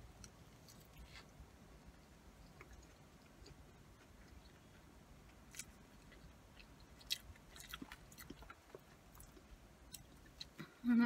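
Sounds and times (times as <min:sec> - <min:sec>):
chewing with wet mouth clicks: 0:02.4 - 0:10.6.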